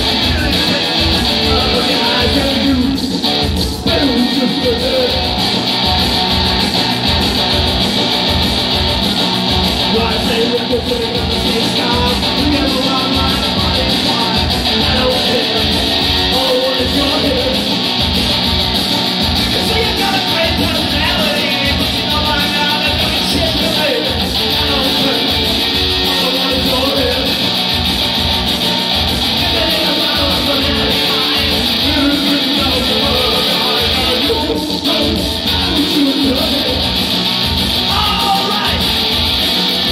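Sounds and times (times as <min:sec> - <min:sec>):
man singing into a microphone: 0:00.0 - 0:05.4, 0:09.8 - 0:17.8, 0:19.5 - 0:27.4, 0:29.4 - 0:37.0, 0:37.9 - 0:38.9
drum beat: 0:00.0 - 0:39.9
electric guitar: 0:00.0 - 0:39.9.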